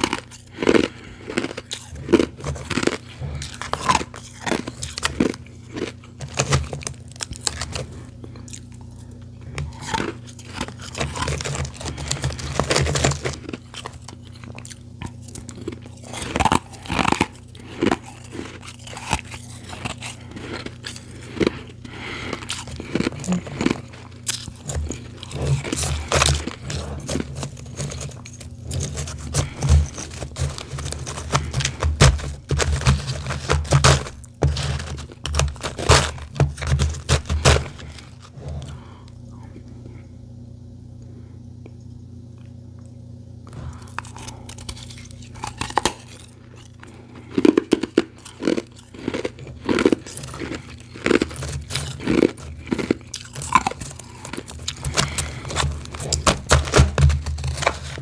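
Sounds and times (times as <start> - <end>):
crunching and chewing ice: 0.0 - 40.1, 42.4 - 58.0
hand digging through ice: 22.3 - 38.2.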